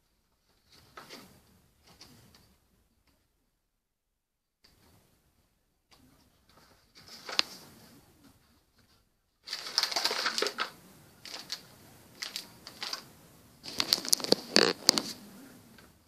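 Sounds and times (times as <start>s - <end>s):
cardboard and paper rustling: 6.4s - 15.2s.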